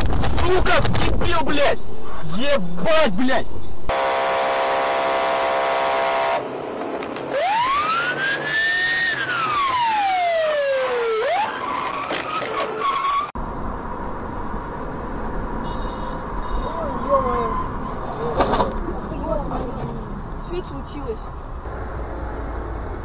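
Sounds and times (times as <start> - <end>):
road noise: 0.0 - 23.0
traffic noise: 0.1 - 23.0
horn-like blare: 3.9 - 6.7
siren wailing: 3.9 - 13.4.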